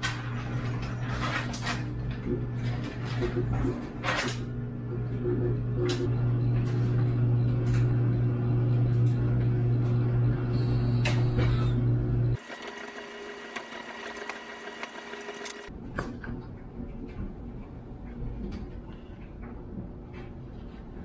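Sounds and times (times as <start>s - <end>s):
low motor hum: 4.6s - 15.7s.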